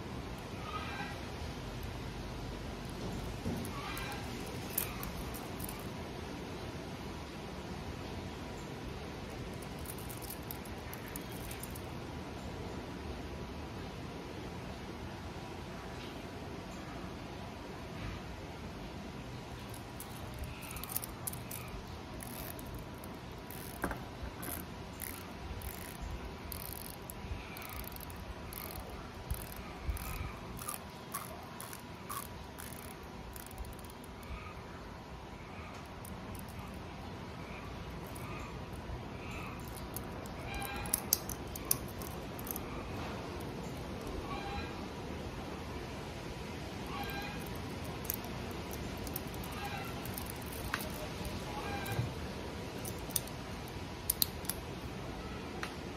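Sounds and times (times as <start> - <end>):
steady background noise: 0.0 - 55.9
watch bezel ratchet clicks: 3.2 - 5.9, 9.6 - 11.8, 19.6 - 34.3, 36.0 - 36.8, 38.0 - 38.3, 39.4 - 42.6, 47.0 - 51.0, 52.8 - 53.4, 54.1 - 54.6
sharp metallic click: 54.1 - 54.6.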